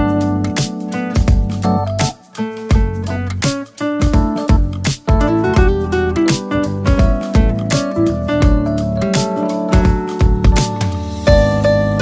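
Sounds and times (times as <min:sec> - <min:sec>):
guitar-led music with beat: 0:00.0 - 0:12.0.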